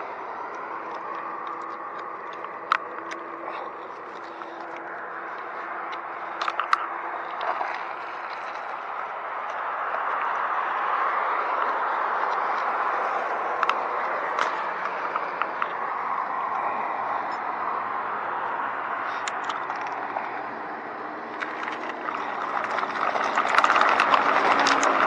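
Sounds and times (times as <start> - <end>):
tyre and road noise: 0.0 - 25.0
bicycle clicks and ticks: 0.4 - 7.6, 8.3 - 15.8, 19.1 - 20.4, 21.2 - 25.0.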